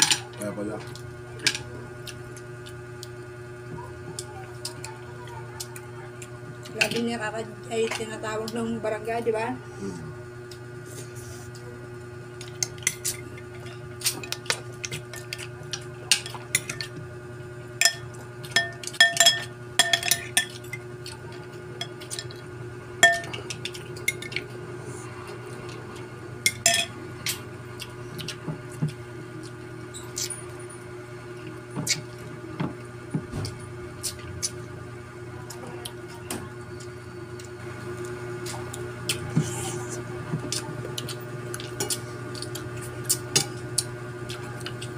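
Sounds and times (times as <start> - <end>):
steady low hum: 0.0 - 44.9
spoon clinking on plates: 17.8 - 20.8, 23.0 - 24.4, 26.5 - 26.9.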